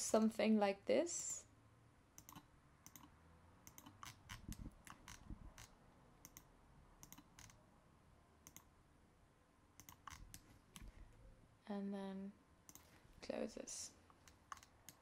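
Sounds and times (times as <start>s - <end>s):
computer mouse clicks: 2.2s - 7.6s, 8.4s - 8.7s, 9.8s - 11.0s, 12.7s - 13.0s, 14.1s - 15.0s.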